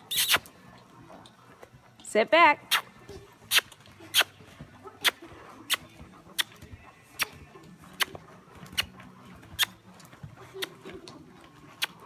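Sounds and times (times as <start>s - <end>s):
tongue clicks: 0.1s - 0.5s, 2.7s - 2.9s, 3.5s - 4.3s, 5.0s - 5.8s, 6.4s - 6.6s, 8.0s - 8.9s, 10.6s - 10.8s, 11.7s - 12.0s.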